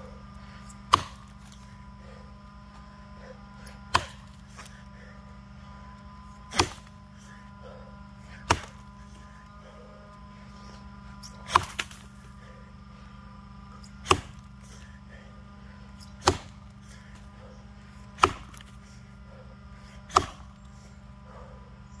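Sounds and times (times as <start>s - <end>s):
axe chopping into log: 0.9s - 1.6s, 3.9s - 4.8s, 6.5s - 7.0s, 8.3s - 8.8s, 11.2s - 12.2s, 14.0s - 14.5s, 16.0s - 16.6s, 18.1s - 18.8s, 20.1s - 20.5s.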